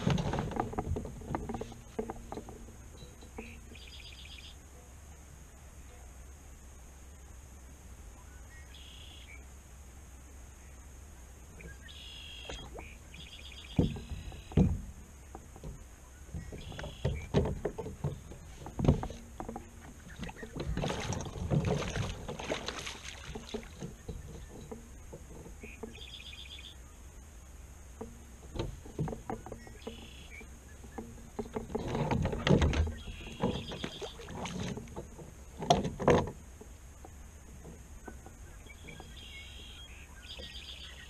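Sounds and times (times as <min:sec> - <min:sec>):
fishing gear knocking on plastic hull: 0:13.7 - 0:26.1
fish splashing: 0:16.6 - 0:24.9.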